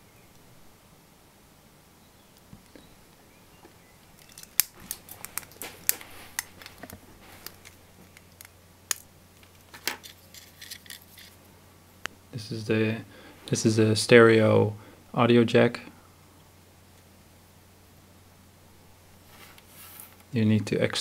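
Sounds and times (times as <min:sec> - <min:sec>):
side cutters snipping wire leads: 0:04.2 - 0:09.1.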